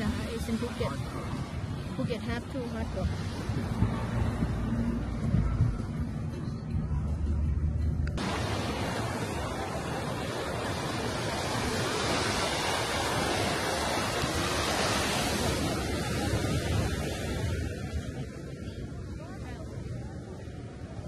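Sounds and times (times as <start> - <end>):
low car interior rumble: 2.9 - 8.2
waves breaking on rocks: 8.2 - 19.6.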